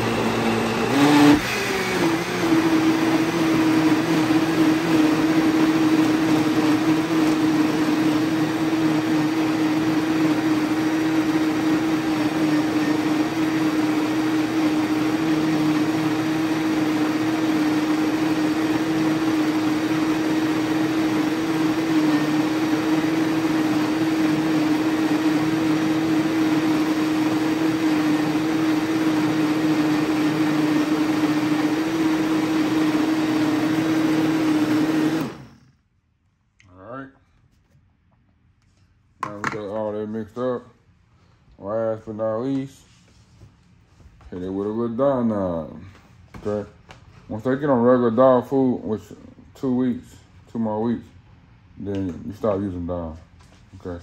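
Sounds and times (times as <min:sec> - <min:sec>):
blender motor running: 0:00.0 - 0:35.8.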